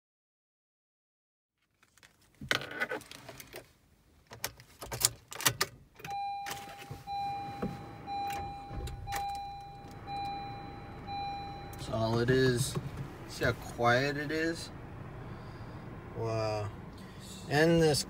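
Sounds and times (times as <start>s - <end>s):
car warning chime: 6.0s - 12.7s.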